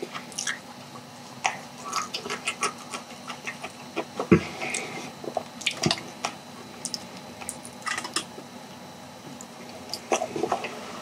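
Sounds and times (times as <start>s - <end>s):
chewing sounds: 0.0s - 0.7s, 1.4s - 8.3s.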